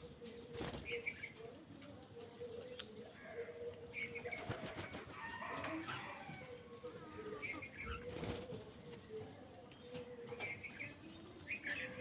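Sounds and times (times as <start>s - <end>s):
birds chirping: 0.0s - 12.0s
wings flapping: 4.3s - 5.8s, 8.0s - 8.7s.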